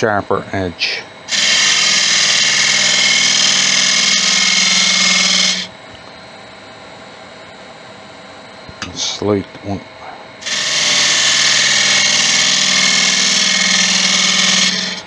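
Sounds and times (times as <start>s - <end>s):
lathe running faintly: 1.2s - 5.7s, 10.4s - 15.0s
lathe tool cutting wood hiss: 1.3s - 5.7s, 10.4s - 15.0s.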